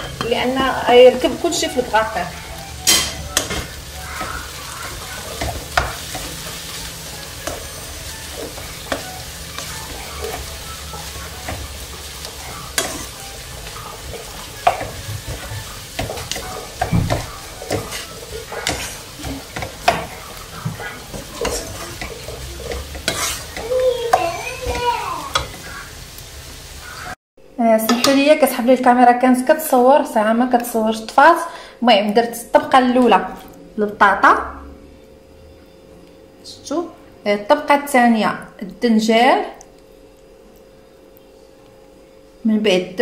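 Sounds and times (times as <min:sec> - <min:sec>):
food sizzling in a frying pan: 0:00.0 - 0:27.2
spatula scraping and tapping pan: 0:02.8 - 0:25.7.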